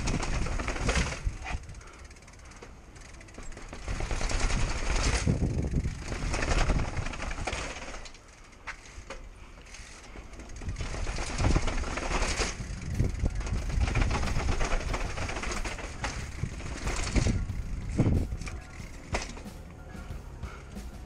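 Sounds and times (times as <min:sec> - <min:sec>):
wind on microphone: 0:00.0 - 0:01.8, 0:03.9 - 0:07.6, 0:10.6 - 0:19.0
bike frame and chain rattling: 0:00.0 - 0:19.7.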